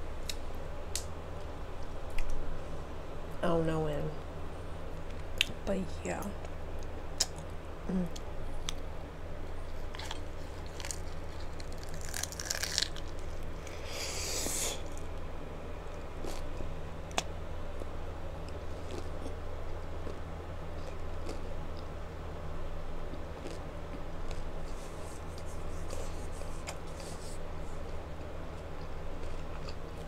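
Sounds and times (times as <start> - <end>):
steady low hum: 0.0 - 30.0
crunching taco shell bites: 9.8 - 15.2.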